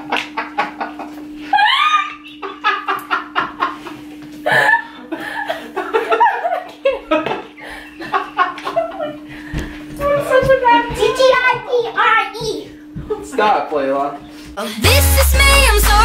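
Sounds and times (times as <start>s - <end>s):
laughter and giggling: 0.0s - 9.3s.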